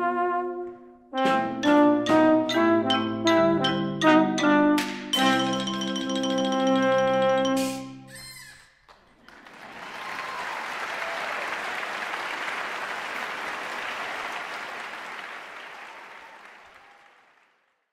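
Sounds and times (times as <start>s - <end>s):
audience applauding: 8.9s - 17.9s.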